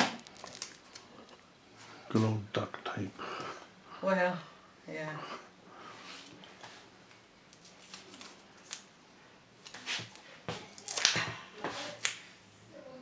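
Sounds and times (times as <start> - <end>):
duct tape ripping: 0.0 - 1.1, 10.7 - 11.2.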